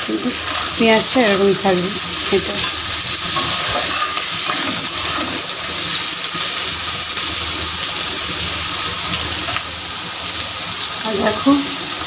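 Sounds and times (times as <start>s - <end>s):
vegetables sizzling in hot oil: 0.0s - 12.0s
metal spatula stirring: 2.3s - 7.5s.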